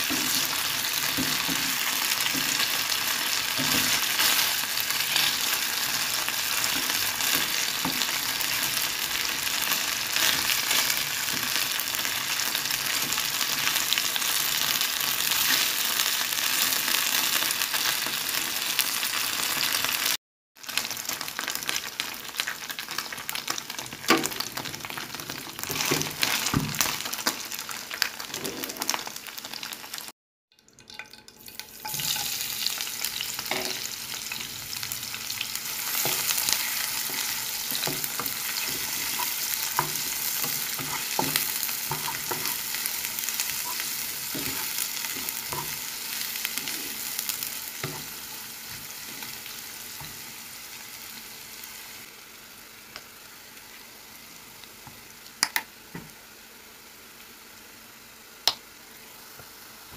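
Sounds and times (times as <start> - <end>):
chicken sizzling in hot oil: 0.0 - 30.1, 30.9 - 59.9
onion and garlic sizzling: 0.0 - 30.1, 30.9 - 59.9
spatula scraping a pan: 35.8 - 42.8.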